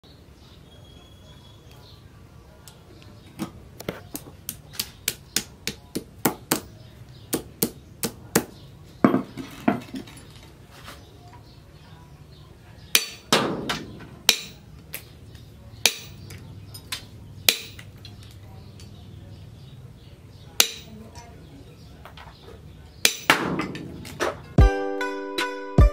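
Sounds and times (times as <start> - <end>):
light metal taps on anvil: 20.6 - 21.3.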